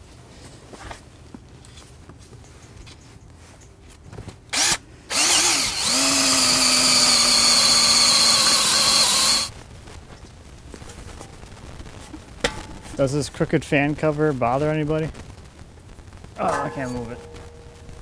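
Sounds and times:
cordless drill whining: 4.5 - 9.5.

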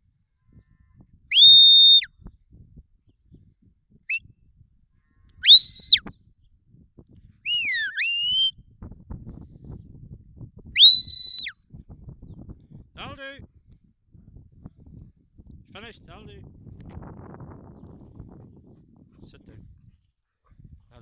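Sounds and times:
shrill herding whistles: 1.3 - 2.1, 5.4 - 6.1, 7.5 - 8.5, 10.8 - 11.6.

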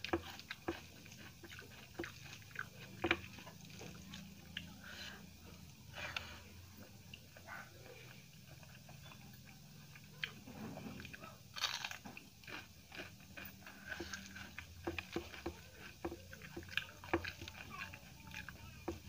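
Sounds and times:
chewing with small clicks: 0.0 - 19.0
crunchy bite into chilli: 9.9 - 16.6.

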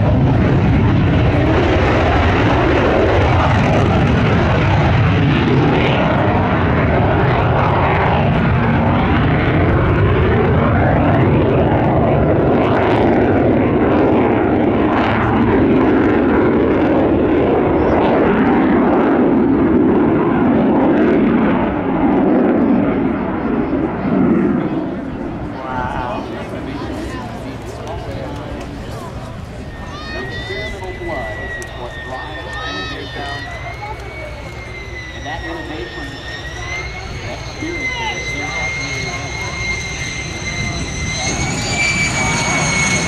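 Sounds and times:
jet engine flyover: 0.0 - 43.0.

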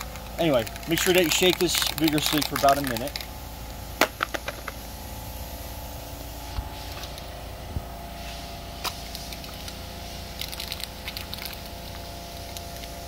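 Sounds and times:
spray can ball rattling: 0.0 - 4.9, 8.8 - 13.0
steady low hum: 0.0 - 13.0
spray can hissing: 0.4 - 3.2, 8.2 - 13.0.

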